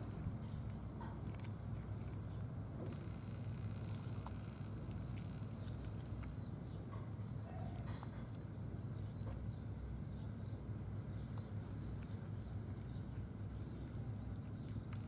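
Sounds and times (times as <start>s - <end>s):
low steady rumble: 0.0s - 15.0s
cat crunching dry food: 1.2s - 2.2s
small birds chirping: 1.4s - 3.0s, 3.8s - 15.0s.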